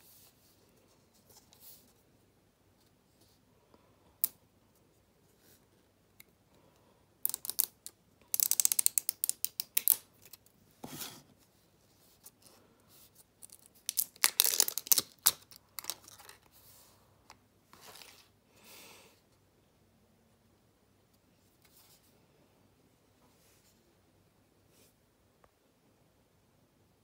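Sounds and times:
plastic cap clicking and crackling: 0:07.2 - 0:10.4, 0:13.4 - 0:16.4.

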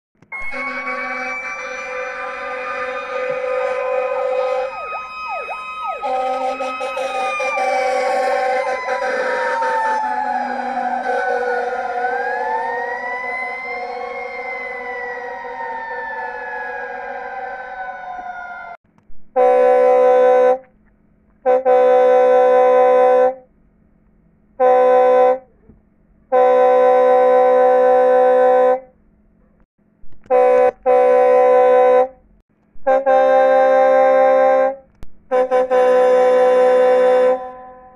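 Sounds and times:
air horn blasts: 0:00.3 - 0:17.5, 0:19.4 - 0:20.7, 0:21.4 - 0:23.5, 0:24.6 - 0:25.5, 0:26.3 - 0:28.9, 0:30.2 - 0:32.2, 0:32.8 - 0:37.9
fire truck siren wailing: 0:00.3 - 0:18.8, 0:35.3 - 0:37.9.

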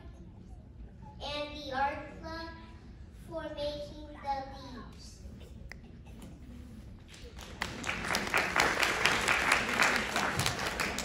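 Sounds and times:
crowd applauding: 0:07.2 - 0:11.0.

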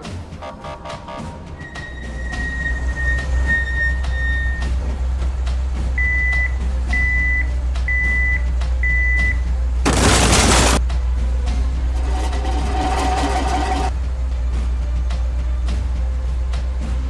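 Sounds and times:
truck engine humming: 0:00.0 - 0:17.0
reversing alarm beeps: 0:06.0 - 0:09.4.

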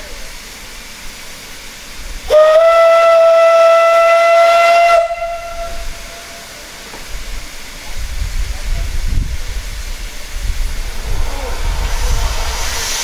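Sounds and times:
steam hissing: 0:00.0 - 0:13.0
steam locomotive whistle blast: 0:02.3 - 0:06.6.

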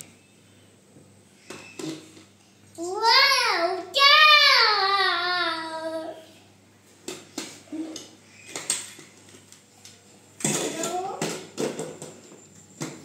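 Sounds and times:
toddler sing-song vocal sound: 0:02.8 - 0:06.2.

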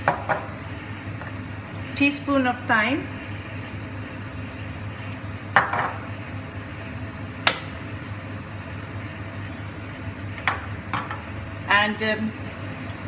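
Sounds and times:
steady low hum: 0:00.0 - 0:13.0
glass jars knocking on worktop: 0:05.6 - 0:06.0.

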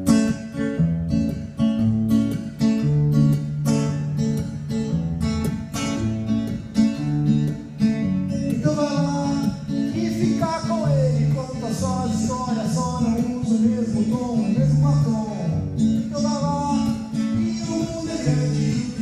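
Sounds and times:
acoustic guitar strumming: 0:00.0 - 0:19.0
man singing: 0:08.5 - 0:19.0.

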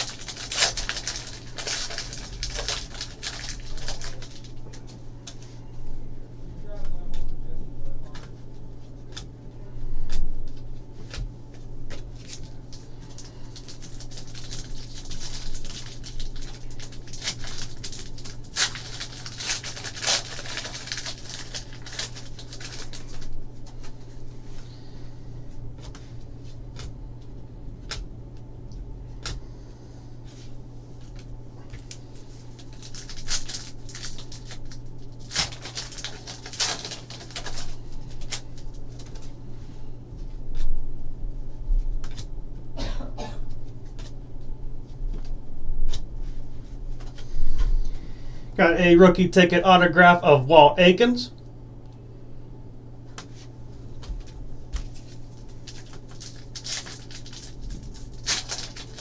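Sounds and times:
foil wrapper crinkling and tearing: 0:00.0 - 0:05.4, 0:11.8 - 0:24.2, 0:31.7 - 0:39.4, 0:54.2 - 0:59.0
steady low hum: 0:00.0 - 0:59.0.

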